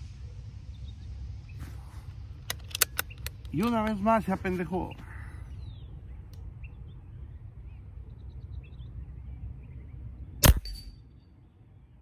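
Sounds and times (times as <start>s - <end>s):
steady low rumble: 0.0s - 12.0s
air rifle shot: 10.4s - 10.8s.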